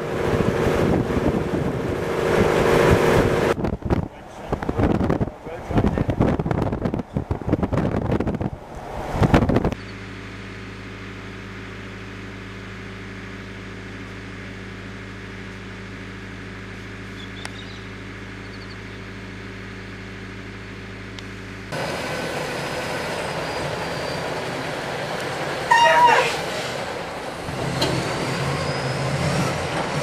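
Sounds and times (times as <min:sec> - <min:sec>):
diesel engine idling: 0:09.8 - 0:28.9
tanker truck passing: 0:14.6 - 0:30.0.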